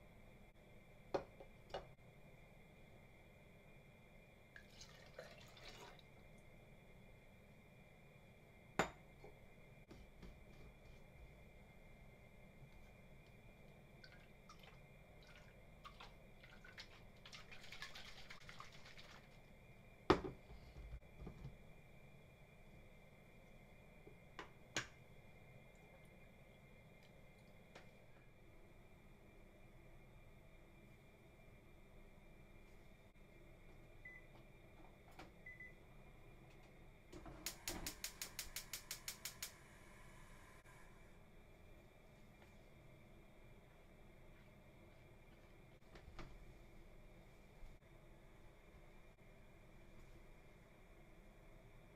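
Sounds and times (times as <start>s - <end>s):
thick liquid pouring into saucepan: 4.6s - 6.1s
gas hob igniter clicking: 37.2s - 39.6s.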